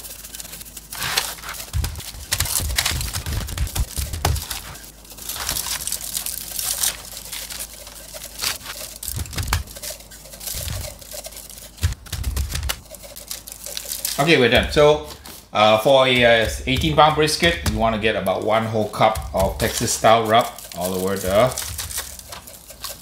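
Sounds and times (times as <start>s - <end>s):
aluminium foil crinkling: 0.0s - 23.0s
shaker clicking and rustling: 0.0s - 23.0s
hand patting meat: 9.1s - 9.8s, 11.7s - 12.9s, 14.4s - 22.5s.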